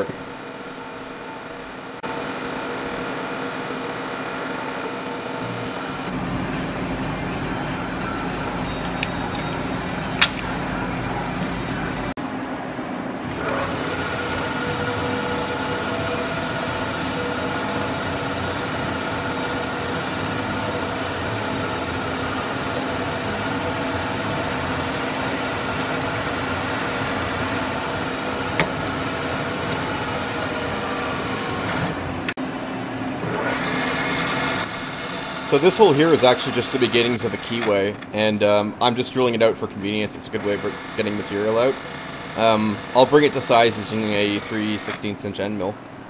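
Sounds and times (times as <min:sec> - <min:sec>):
milling machine humming: 0:00.0 - 0:38.9, 0:39.6 - 0:45.9
drill cutting into metal: 0:40.4 - 0:45.0.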